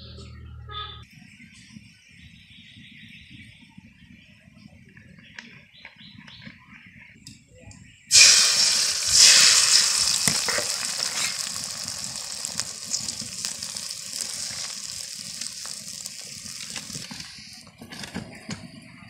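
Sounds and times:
eggs sizzling in hot oil: 8.1s - 17.6s.

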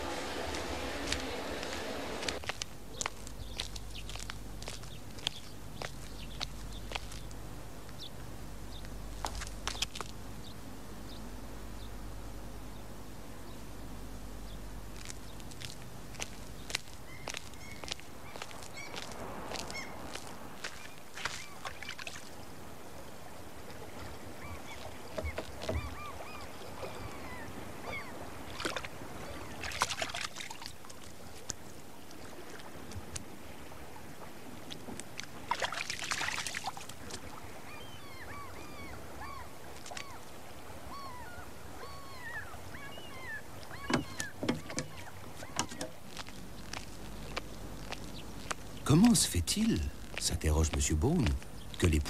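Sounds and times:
surf breaking: 0.0s - 2.6s
birds calling: 0.0s - 52.0s
sea wash: 0.0s - 52.0s.

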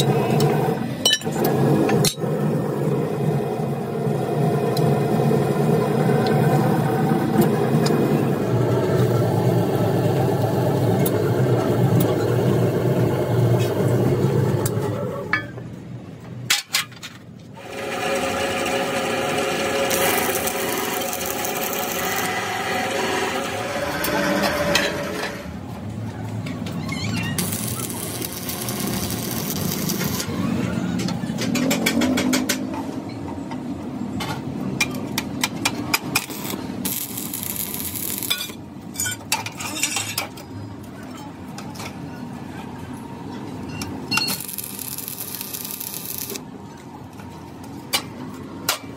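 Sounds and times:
factory machinery humming: 0.0s - 15.5s, 17.6s - 26.0s, 27.4s - 31.1s.

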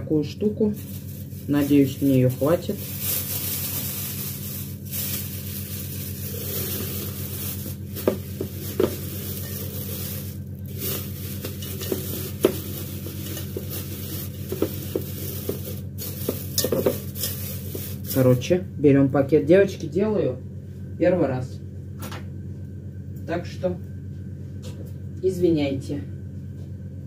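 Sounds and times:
steady low hum: 0.0s - 27.0s
food stirred in a bowl: 0.8s - 18.2s.

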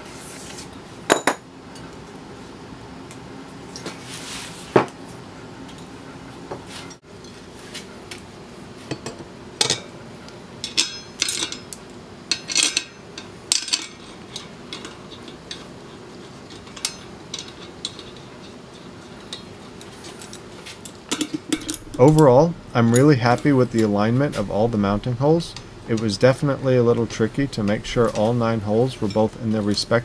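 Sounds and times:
faint steady hum: 7.2s - 30.0s.

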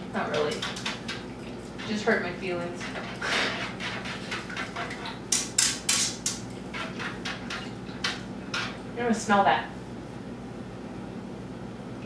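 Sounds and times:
whisk scraping a skillet: 0.6s - 5.2s, 6.0s - 8.8s.

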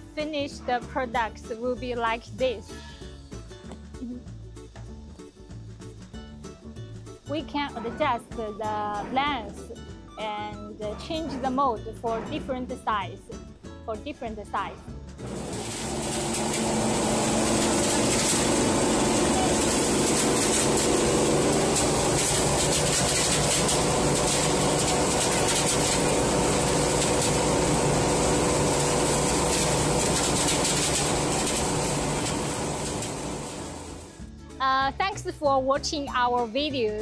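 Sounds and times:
mill machinery humming: 15.2s - 34.2s.

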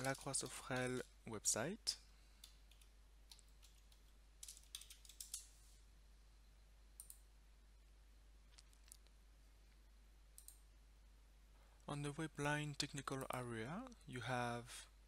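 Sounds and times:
faint keyboard typing: 0.0s - 1.2s, 2.4s - 5.8s, 7.0s - 7.3s, 10.3s - 10.6s.

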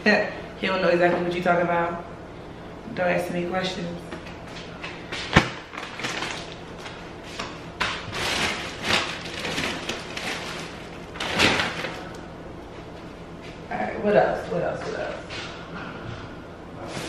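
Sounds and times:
plastic and paper bags crinkling: 5.4s - 12.2s.

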